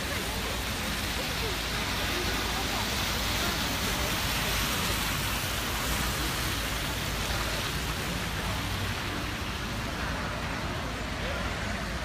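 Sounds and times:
low traffic rumble: 0:00.0 - 0:12.0
tyres on wet slushy road: 0:00.0 - 0:12.0.

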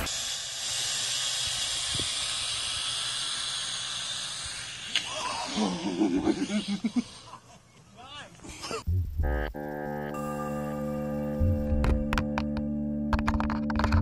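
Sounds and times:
drone propellers whirring: 0:00.0 - 0:06.6.

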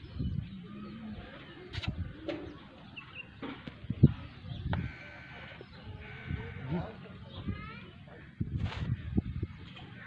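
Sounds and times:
faint bird calls: 0:04.4 - 0:10.0.

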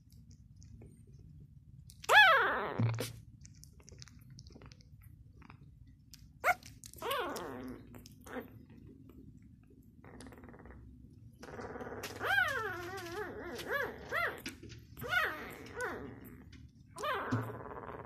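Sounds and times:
puppy crying: 0:02.0 - 0:03.1, 0:06.4 - 0:08.6, 0:11.5 - 0:18.0
small clicks and rustling: 0:02.8 - 0:10.5, 0:11.4 - 0:17.6.

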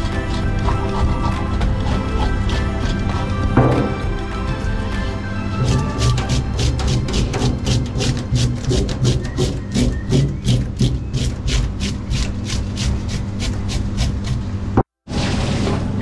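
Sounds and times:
scaling tool scraping fish scales: 0:00.0 - 0:03.6, 0:05.6 - 0:14.5.

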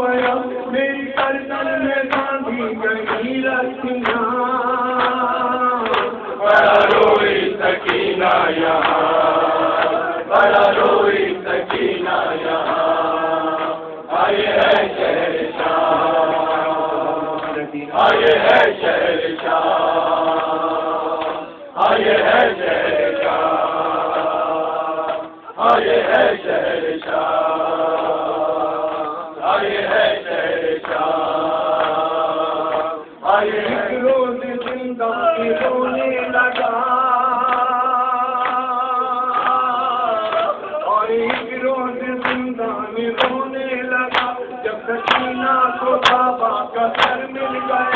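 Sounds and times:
man chanting a lament: 0:00.0 - 0:07.6, 0:33.3 - 0:47.9.

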